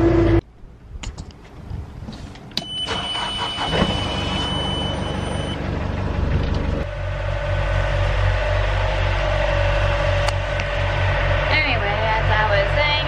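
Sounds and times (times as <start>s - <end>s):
warning buzzer beep: 2.6s - 5.6s
boat engine running: 3.8s - 13.0s.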